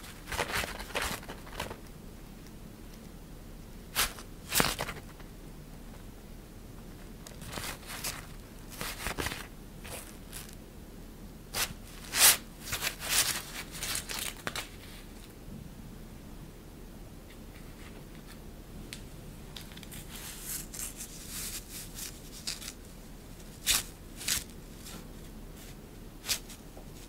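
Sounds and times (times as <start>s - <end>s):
synthetic fabric rustling and crinkling: 7.0s - 10.6s, 11.6s - 15.3s, 19.6s - 27.0s.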